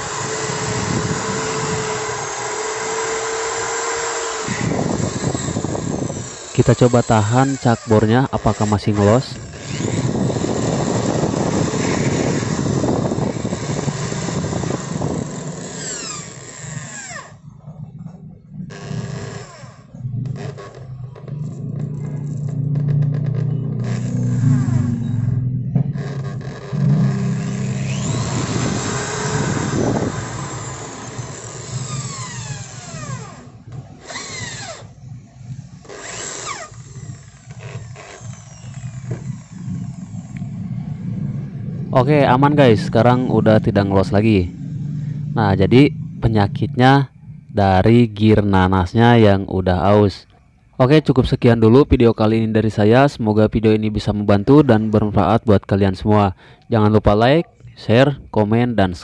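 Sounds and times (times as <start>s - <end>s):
electric drill whining: 0.0s - 17.5s, 18.7s - 41.0s.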